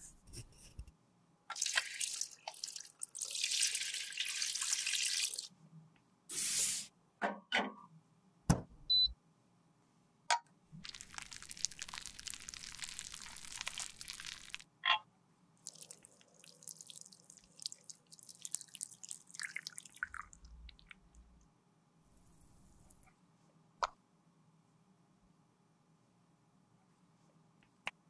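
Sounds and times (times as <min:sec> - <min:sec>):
liquid pouring with soft hiss: 0:01.5 - 0:05.5, 0:10.8 - 0:14.6, 0:15.6 - 0:21.1.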